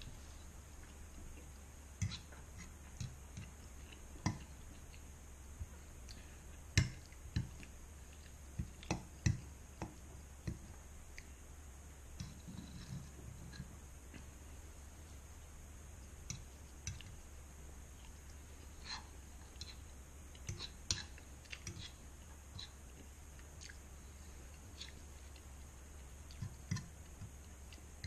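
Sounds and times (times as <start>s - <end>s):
chewing: 18.0s - 25.7s.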